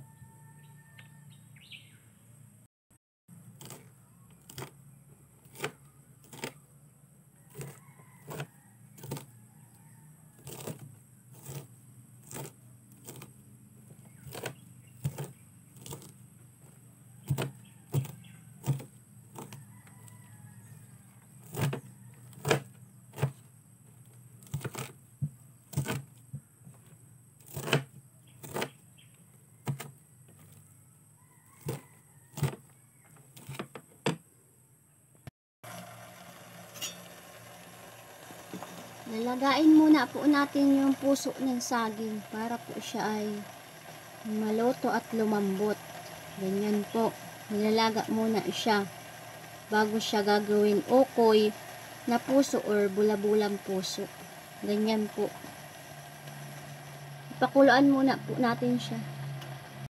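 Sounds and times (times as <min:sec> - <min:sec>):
knife chopping on a tray: 0:14.2 - 0:16.1, 0:17.2 - 0:19.6, 0:21.4 - 0:23.4, 0:27.5 - 0:28.8.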